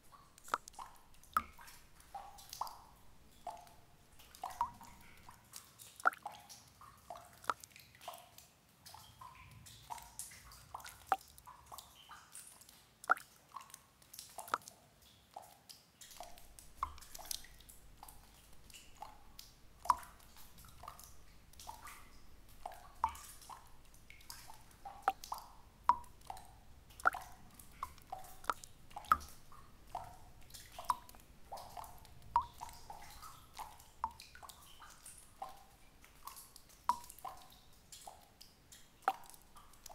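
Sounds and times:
water drops plopping: 0.1s - 5.4s, 6.0s - 7.8s, 10.8s - 12.1s, 13.0s - 13.3s, 16.0s - 38.4s, 39.0s - 39.9s.

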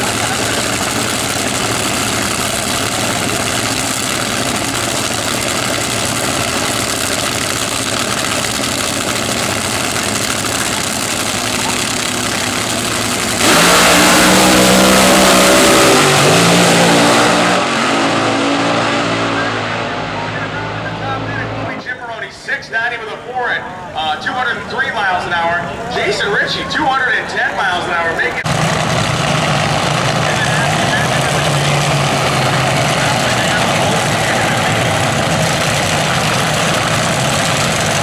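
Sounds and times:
dragster engines roaring: 0.0s - 38.0s.

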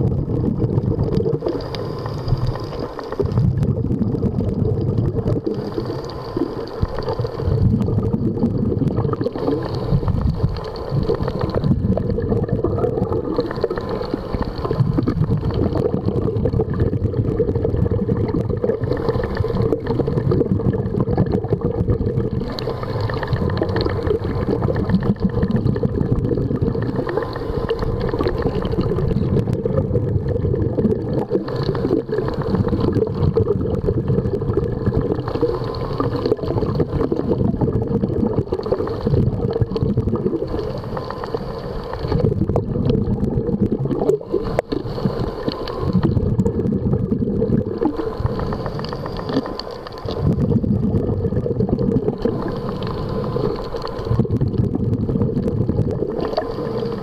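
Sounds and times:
underwater low rush: 0.0s - 57.0s
faint clicks: 43.9s - 46.2s, 47.8s - 50.4s.

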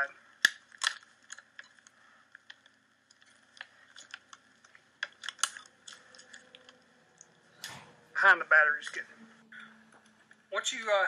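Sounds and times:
plastic connectors clicking: 0.4s - 7.8s.

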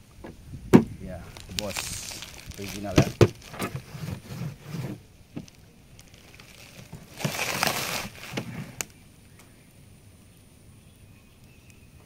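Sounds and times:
plastic and cardboard rustling: 0.8s - 8.9s.

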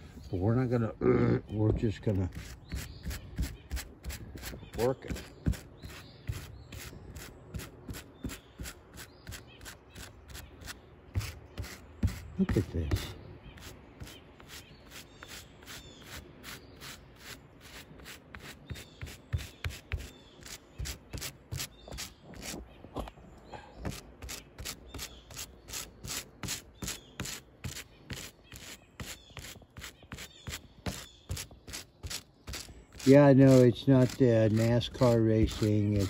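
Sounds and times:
hand brush scrubbing wet carpet: 31.7s - 36.0s.

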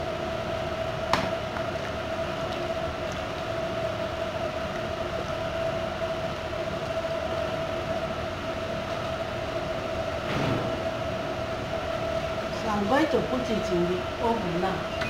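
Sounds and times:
steady machine hum: 0.0s - 15.0s
short bump: 10.2s - 11.0s.

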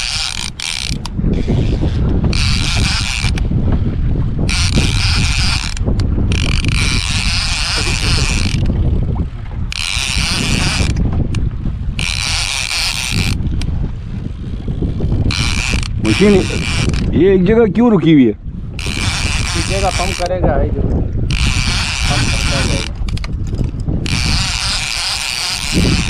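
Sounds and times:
fishing reel gear rattle: 0.0s - 3.5s, 4.5s - 8.8s, 9.7s - 11.4s, 12.0s - 17.2s, 18.7s - 20.4s, 21.3s - 26.0s.

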